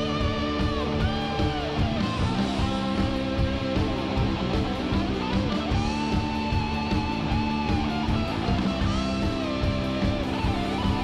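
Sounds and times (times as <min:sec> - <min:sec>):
guitar music with bending notes: 0:00.0 - 0:11.0.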